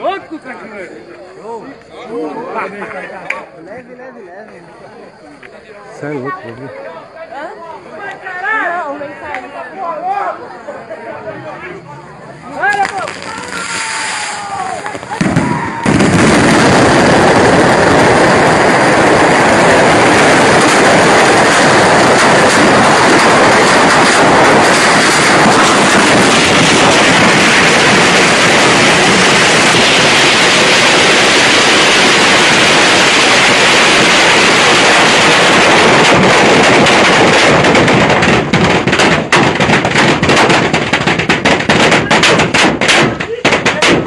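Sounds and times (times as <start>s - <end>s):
firecrackers crackling: 12.3s - 44.0s.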